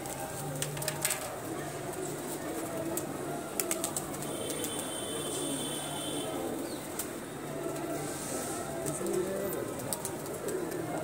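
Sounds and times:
pigeons cooing: 8.7s - 11.0s.

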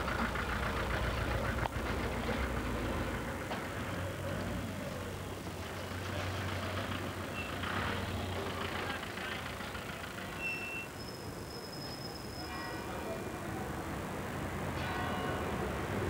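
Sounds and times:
van engine humming: 0.0s - 10.4s
street noise: 0.0s - 16.0s.

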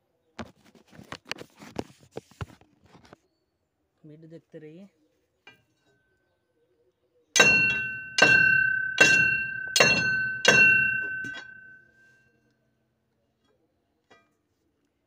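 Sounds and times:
hammer blows on steel bar: 7.4s - 11.8s.

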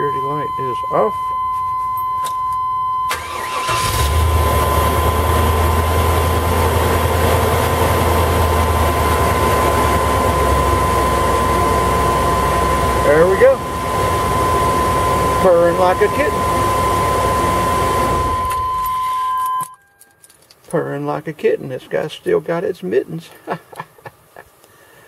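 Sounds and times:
steady high-pitched beep: 0.0s - 3.2s, 9.2s - 19.8s
van engine idling: 3.1s - 14.2s.

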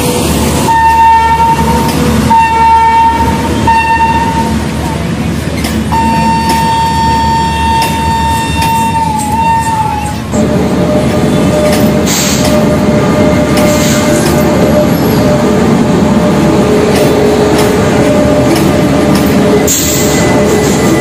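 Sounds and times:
train rumbling on rails: 0.0s - 21.0s
train horn blasts: 0.7s - 4.6s, 5.9s - 10.2s.

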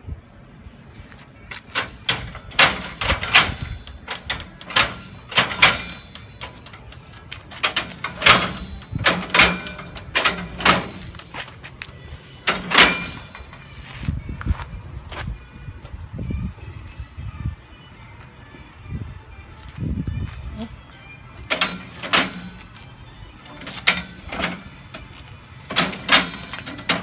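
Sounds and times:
metal doors clanking: 1.7s - 11.6s, 12.3s - 13.7s, 21.5s - 22.8s, 23.5s - 27.0s.

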